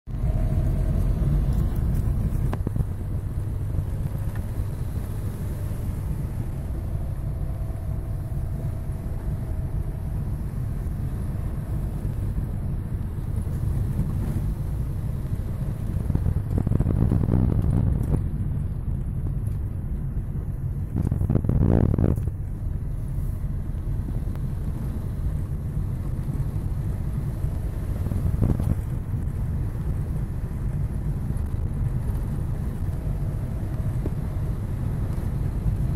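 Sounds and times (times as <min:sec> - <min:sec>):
car engine and tyre rumble: 0:00.0 - 0:35.9.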